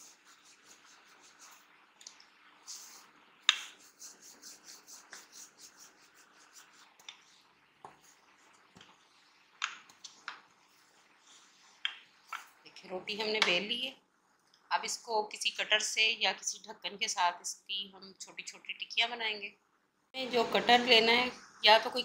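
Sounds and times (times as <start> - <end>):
rolling pin rubbing dough: 0.0 - 1.6, 2.6 - 9.1.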